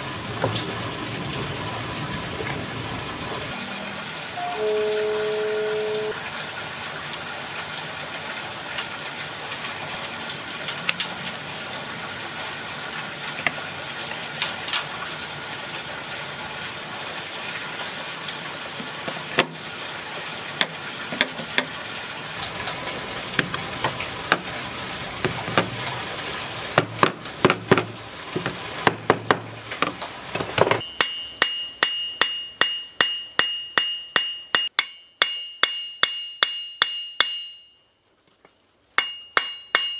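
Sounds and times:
hammer striking steel: 30.8 - 37.8, 39.0 - 39.9.

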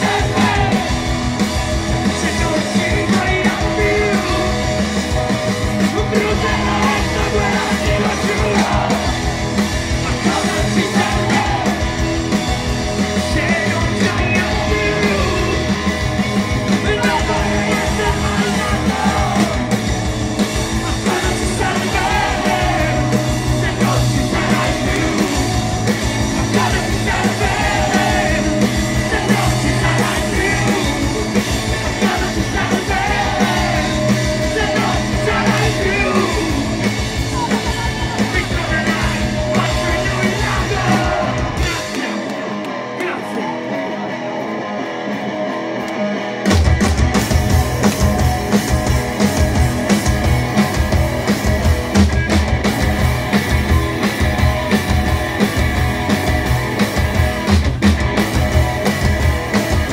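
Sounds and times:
live rock band playing: 0.0 - 59.9
person singing: 5.8 - 9.1, 13.2 - 15.9, 16.7 - 19.7, 20.8 - 25.6, 26.4 - 42.4.

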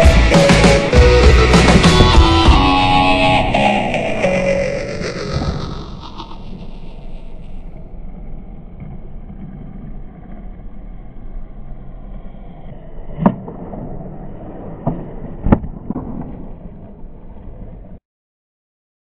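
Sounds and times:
skateboard wheels rolling on concrete: 0.0 - 18.0
skateboard hitting down: 13.2 - 17.7.

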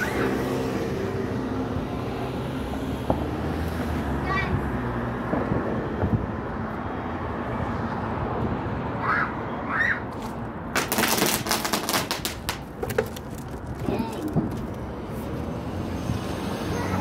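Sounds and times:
short high squeals: 0.0 - 0.6
firecrackers crackling: 10.7 - 15.0.

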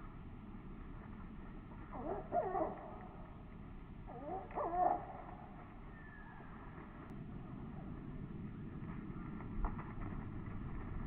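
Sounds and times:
low background noise: 0.0 - 11.0
wavering animal calls: 4.1 - 5.4.

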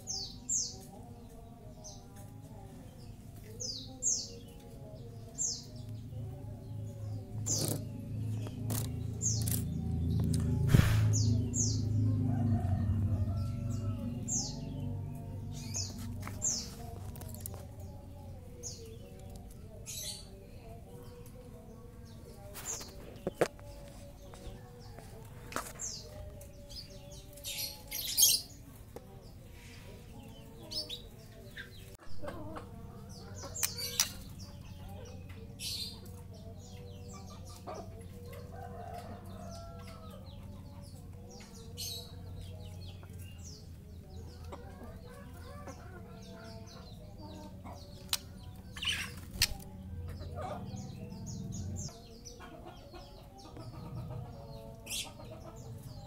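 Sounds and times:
low steady hum: 0.9 - 27.8
bird chirps and clicks: 7.5 - 10.5, 33.5 - 34.2, 48.0 - 48.3, 49.3 - 49.6.

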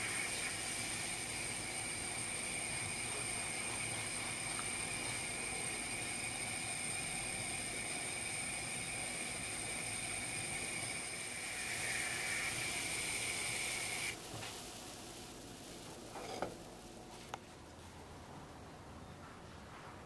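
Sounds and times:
water hissing in a hot pan: 0.0 - 17.0
pan scraping on hob: 16.1 - 16.6.

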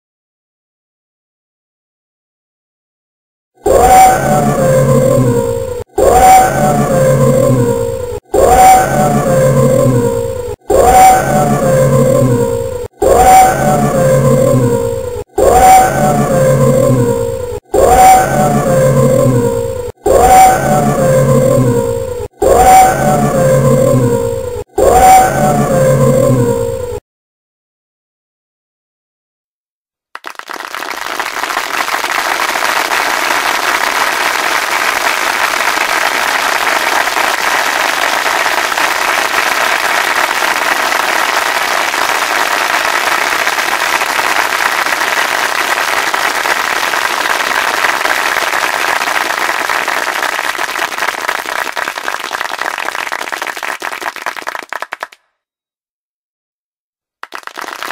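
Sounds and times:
crowd applauding: 30.2 - 55.2, 57.2 - 57.9.

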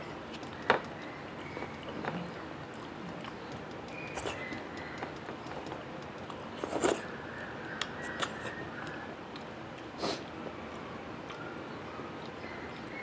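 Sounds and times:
chewing and lip smacks: 0.3 - 7.1, 7.8 - 13.0
sharp mouth clicks: 1.8 - 7.0.

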